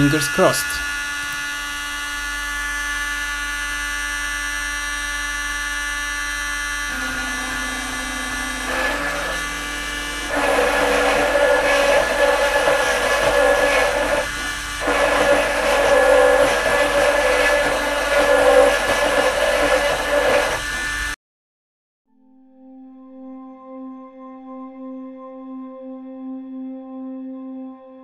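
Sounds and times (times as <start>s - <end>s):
stepper motors changing pitch: 0.0s - 1.7s, 6.8s - 21.2s
rotary tool spindle whine: 0.0s - 21.2s
bit cutting into metal: 6.9s - 21.2s.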